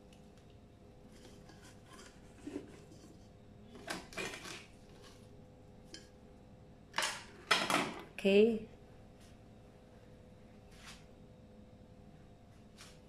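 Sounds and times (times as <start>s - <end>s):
scrapes against kettle: 1.1s - 5.2s.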